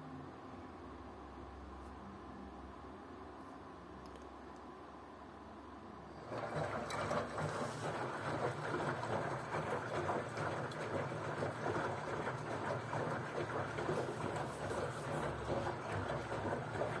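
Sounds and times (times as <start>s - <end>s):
low machine hum: 0.0s - 17.0s
water sloshing inside washer: 6.1s - 17.0s
washing machine drum tumbling: 6.2s - 17.0s.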